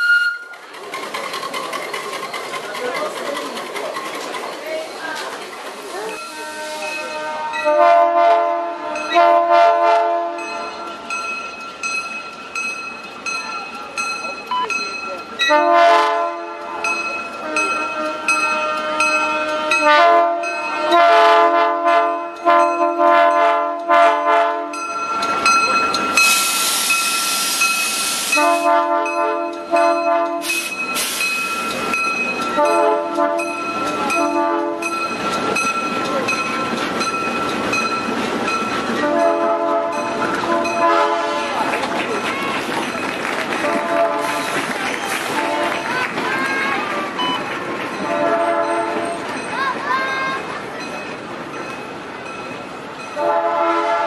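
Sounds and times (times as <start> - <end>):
loud rushing hiss of passing train: 0.5 - 7.7, 25.0 - 28.9, 30.3 - 54.0
locomotive air horn blasts: 6.2 - 11.0, 15.5 - 24.8, 28.2 - 31.2, 32.6 - 34.9, 39.0 - 41.7, 43.6 - 44.6, 45.2 - 45.9, 48.0 - 49.2, 53.2 - 54.0.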